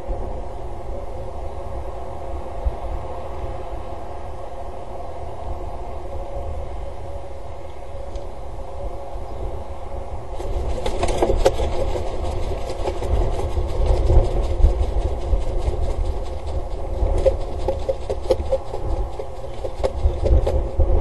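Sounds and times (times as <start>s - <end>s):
steady low rumble: 0.0s - 21.0s
falcon flapping wings: 10.3s - 21.0s.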